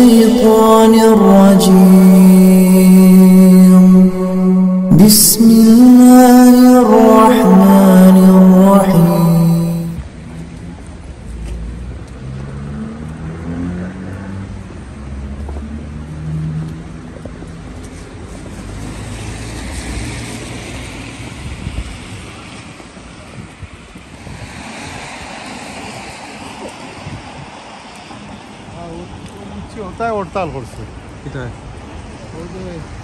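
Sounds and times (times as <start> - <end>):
road traffic rumble: 0.0 - 33.0
wind buffeting microphone: 21.2 - 28.3.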